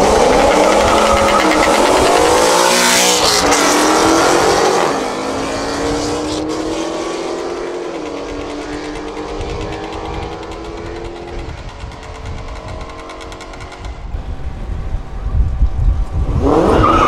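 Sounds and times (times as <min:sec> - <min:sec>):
car engine accelerating hard: 0:00.0 - 0:13.5.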